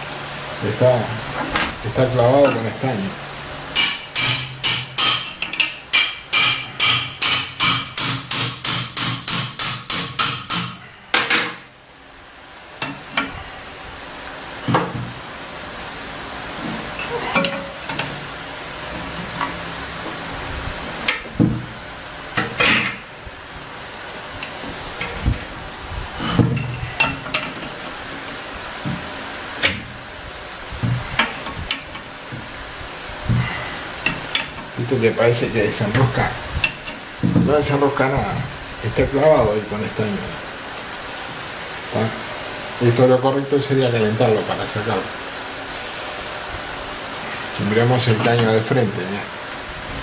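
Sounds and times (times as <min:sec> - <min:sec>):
tools clanking on engine block: 0:01.4 - 0:02.7, 0:16.7 - 0:18.2
hammer tapping on metal: 0:03.7 - 0:11.5.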